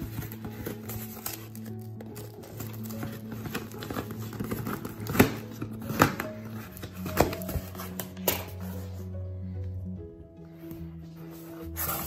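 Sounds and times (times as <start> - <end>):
tape ripping: 0.0 - 8.8
cardboard and tape crackling: 0.0 - 9.1
background music with held notes: 0.0 - 12.0.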